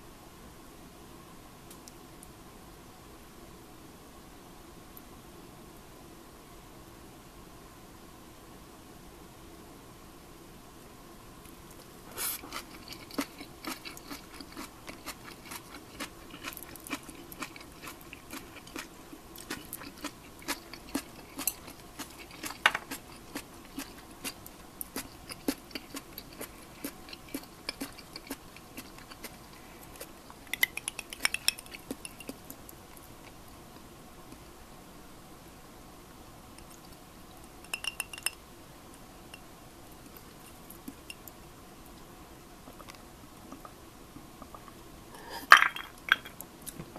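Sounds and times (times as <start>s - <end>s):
chopsticks tapping on a plate: 22.4s - 23.0s
ice clinking in a glass: 37.7s - 38.4s, 45.5s - 46.3s.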